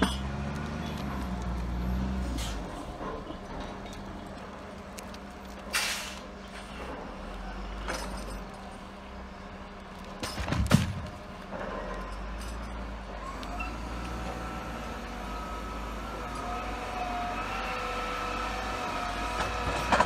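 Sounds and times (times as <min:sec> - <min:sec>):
diesel engine running: 0:00.0 - 0:20.0
short hiss: 0:05.7 - 0:06.3
log dropping with clatter: 0:10.1 - 0:11.2.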